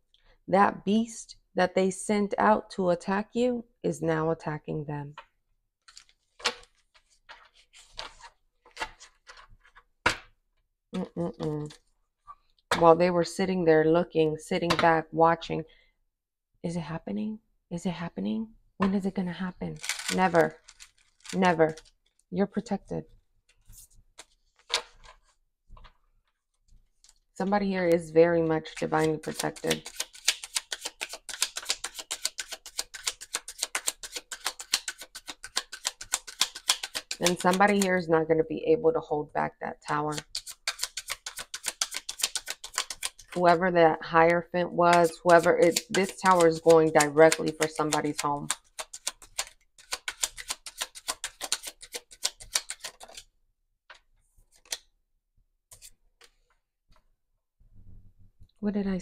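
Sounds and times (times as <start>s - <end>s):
cards being shuffled: 5.9s - 9.8s, 19.8s - 22.2s, 23.5s - 26.0s, 28.8s - 37.9s, 40.1s - 43.4s, 44.9s - 53.3s, 53.9s - 54.9s.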